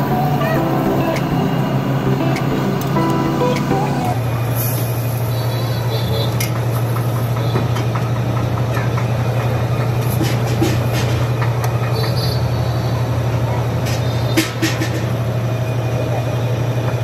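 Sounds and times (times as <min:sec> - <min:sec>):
low hum: 0:00.0 - 0:04.4.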